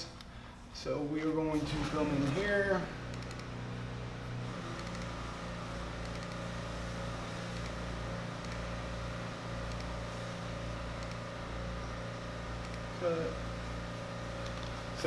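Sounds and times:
low mechanical hum: 0.0s - 15.0s
faint clicks: 8.4s - 8.7s, 9.7s - 9.9s, 11.0s - 11.2s.

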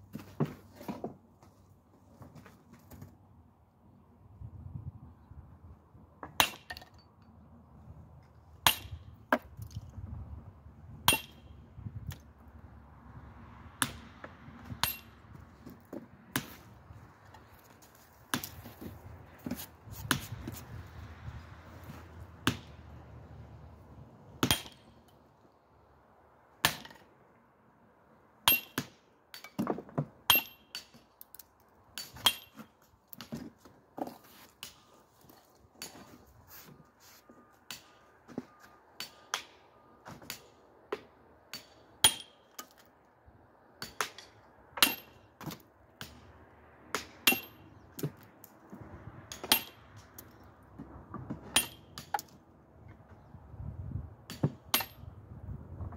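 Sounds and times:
hammer striking steel chisel on stone: 41.5s - 42.7s, 47.2s - 47.7s, 51.6s - 52.2s.

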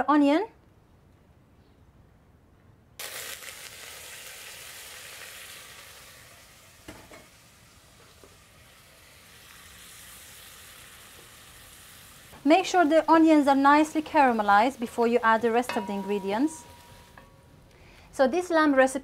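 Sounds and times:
onions sizzling in hot oil: 3.0s - 17.3s
wooden spoon knocking pot: 15.5s - 17.4s.

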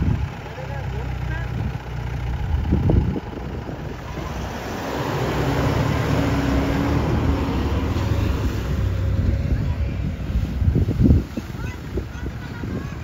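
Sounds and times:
car engine driving past: 3.9s - 10.6s.

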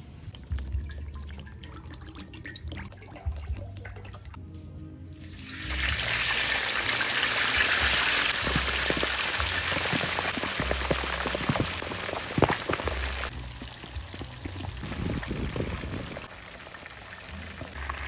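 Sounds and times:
deep-frying sizzle and crackle: 5.2s - 18.0s.

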